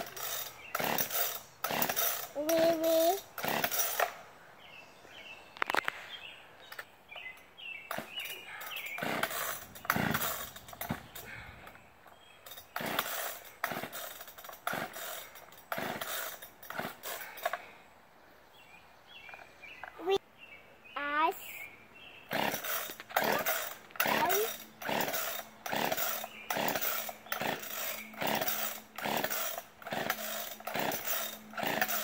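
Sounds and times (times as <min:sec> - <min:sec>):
chainsaw starter cord pulls: 0:00.0 - 0:04.2, 0:07.9 - 0:17.7, 0:22.3 - 0:32.0.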